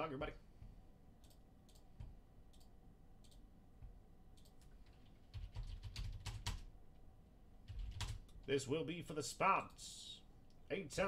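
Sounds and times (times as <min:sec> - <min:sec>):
computer keyboard typing: 0:04.4 - 0:06.7, 0:07.7 - 0:08.4.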